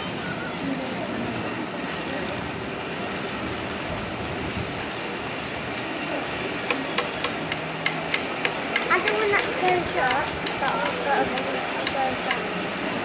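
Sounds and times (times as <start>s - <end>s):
cliff railway car rumbling: 1.0s - 13.0s.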